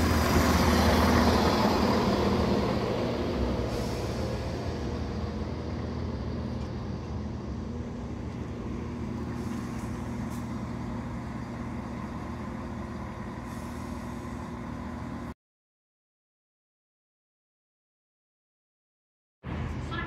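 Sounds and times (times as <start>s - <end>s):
train diesel engines humming: 0.0s - 15.4s.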